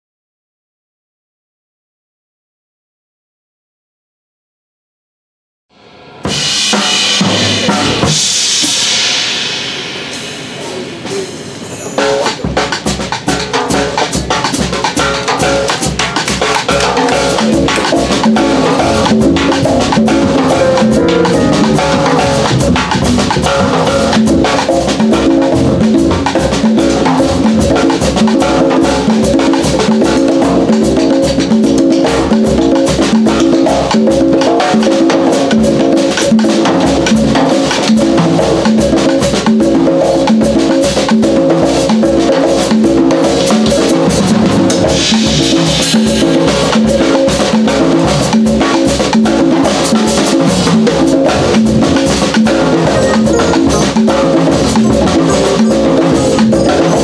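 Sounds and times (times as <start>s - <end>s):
drum kit: 5.8s - 57.0s
hand drums: 12.3s - 57.0s
bass and keyboard riff: 17.2s - 26.3s, 51.4s - 57.0s.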